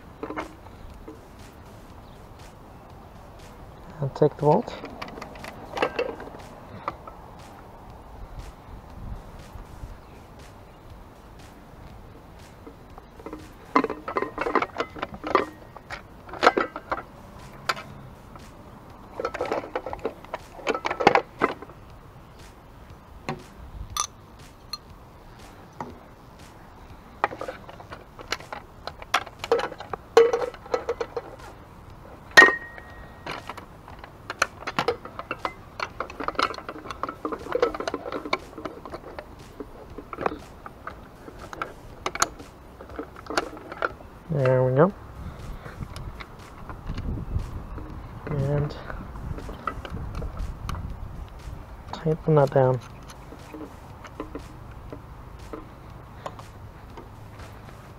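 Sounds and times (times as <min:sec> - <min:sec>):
metal clinks and rattles: 0:03.4 - 0:07.2, 0:12.6 - 0:18.5, 0:19.1 - 0:21.7, 0:24.0 - 0:24.9, 0:27.2 - 0:31.6, 0:32.2 - 0:44.0
sharp ringing metal clink: 0:32.4 - 0:33.0.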